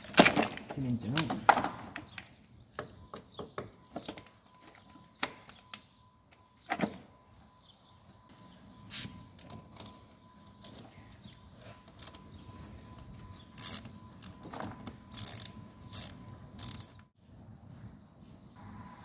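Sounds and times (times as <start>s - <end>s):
ratchet wrench clicking: 15.1s - 17.0s.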